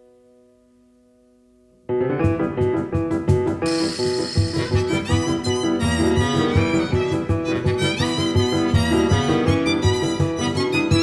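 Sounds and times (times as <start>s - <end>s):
piano accompaniment: 0.0s - 11.0s
basset horn melody: 3.7s - 11.0s.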